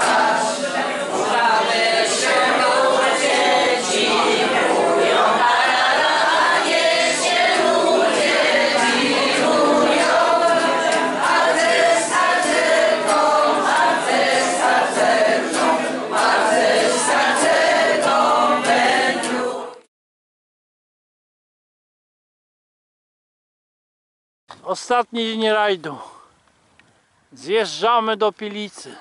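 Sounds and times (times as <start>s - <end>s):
strummed acoustic guitar: 0.0s - 19.7s
group singing: 0.0s - 19.9s.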